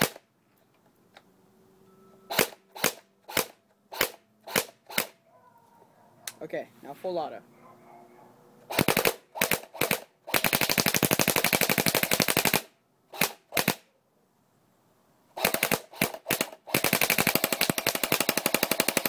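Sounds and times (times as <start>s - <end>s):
airsoft gun firing bursts: 2.3s - 5.2s, 8.7s - 13.8s, 15.4s - 19.0s.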